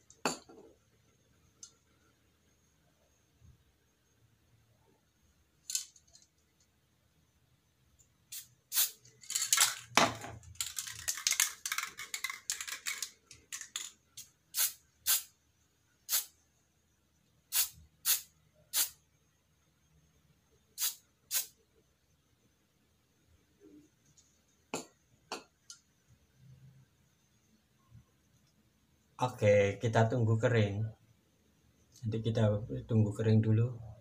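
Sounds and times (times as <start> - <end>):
spray can ball rattling: 8.3 - 15.3, 16.1 - 16.3, 17.5 - 19.0, 20.8 - 21.5.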